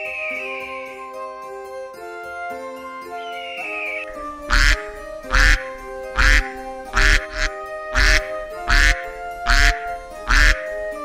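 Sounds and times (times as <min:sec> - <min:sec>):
background music with held notes: 0:00.0 - 0:11.0
duck quacking: 0:04.1 - 0:10.8.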